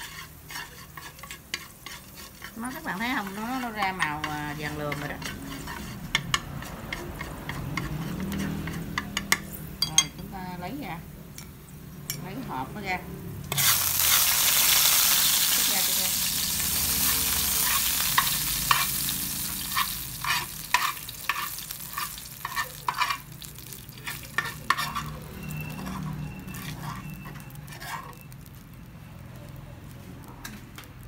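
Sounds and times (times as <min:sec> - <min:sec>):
spoon scraping and tapping a pan: 0:00.0 - 0:10.4, 0:17.0 - 0:28.6, 0:30.4 - 0:31.0
oil sizzling in a frying pan: 0:00.0 - 0:31.0.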